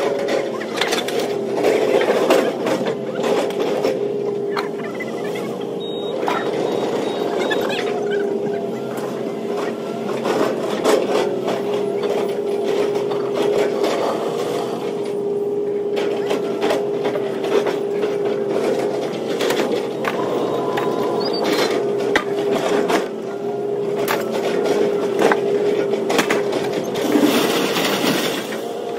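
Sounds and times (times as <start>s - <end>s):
machine droning: 0.0s - 28.9s
scrap metal clanking and scraping: 23.9s - 28.8s.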